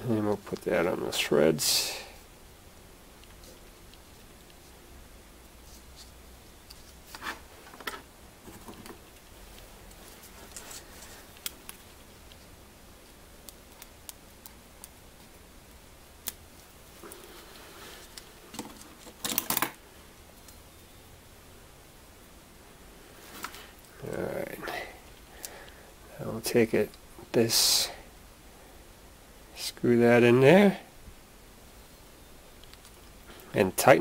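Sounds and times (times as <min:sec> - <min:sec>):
tape handling clicks and rustles: 0:18.0 - 0:19.8.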